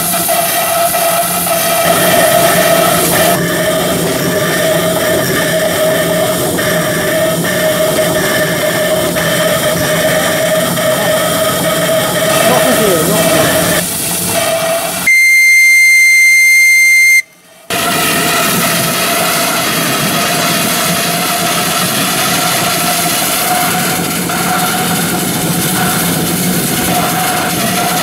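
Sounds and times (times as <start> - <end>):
steam engine hissing: 0.0 - 28.0
steam whistle: 14.4 - 25.1.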